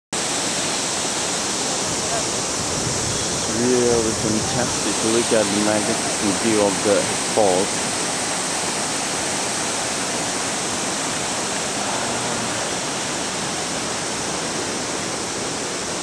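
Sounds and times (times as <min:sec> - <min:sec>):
rushing water: 0:00.2 - 0:16.0.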